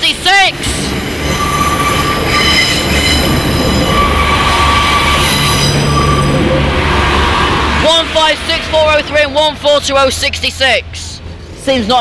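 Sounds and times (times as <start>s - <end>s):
train wheels rumbling on rails: 0.0s - 12.0s
high-pitched wheel squeal: 0.6s - 7.9s.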